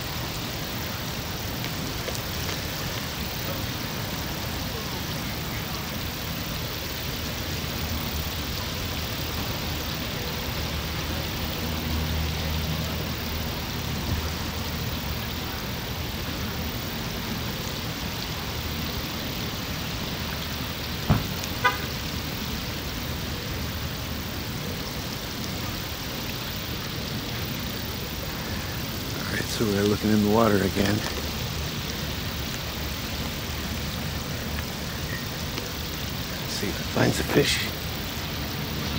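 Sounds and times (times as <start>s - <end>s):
distant road traffic: 0.0s - 38.9s
vehicle engine hum passing: 0.0s - 38.9s
brief horn toot: 21.6s - 21.9s.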